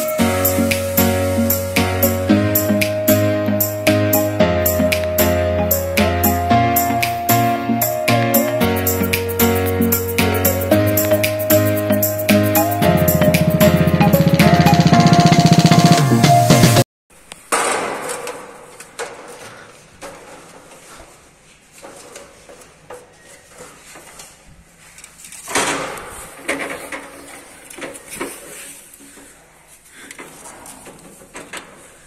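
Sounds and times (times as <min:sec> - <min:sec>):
drum-backed music: 0:00.0 - 0:16.8.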